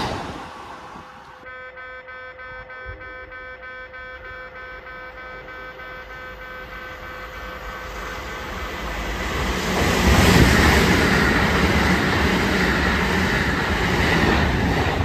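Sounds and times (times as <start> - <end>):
train passing at speed: 0.0 - 1.4, 6.7 - 15.0
rail clatter: 7.8 - 15.0.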